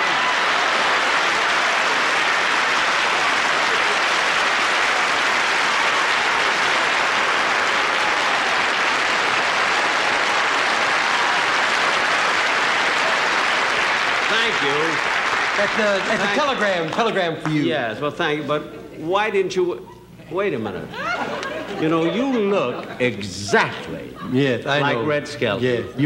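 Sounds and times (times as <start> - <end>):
audience applauding: 0.0 - 17.7.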